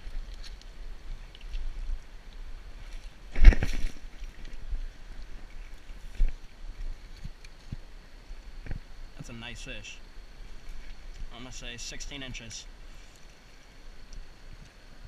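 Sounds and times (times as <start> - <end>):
wind rumble on microphone: 0.0 - 9.2.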